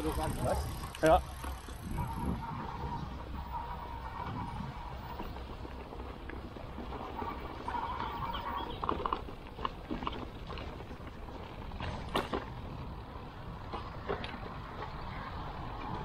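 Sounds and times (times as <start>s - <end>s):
bike knocking and rattling over stones: 0.0s - 16.0s
wind and tyre rumble: 0.0s - 16.0s.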